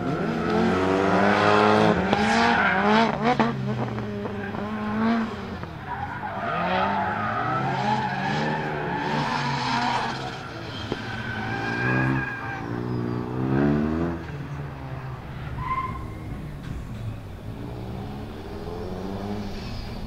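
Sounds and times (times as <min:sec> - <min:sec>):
car engine revving hard: 0:00.0 - 0:05.5, 0:11.4 - 0:14.3.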